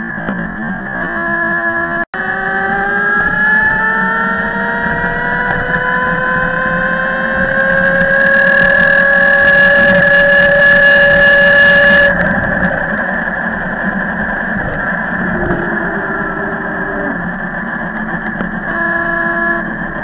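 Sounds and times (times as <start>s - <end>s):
wind and road noise: 0.0s - 18.8s
electric motor whining: 14.6s - 20.0s.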